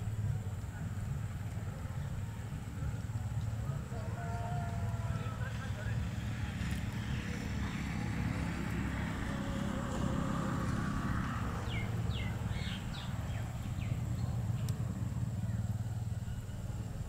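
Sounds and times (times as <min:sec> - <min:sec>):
low outdoor rumble: 0:00.0 - 0:17.0
bird chirping: 0:11.3 - 0:14.8.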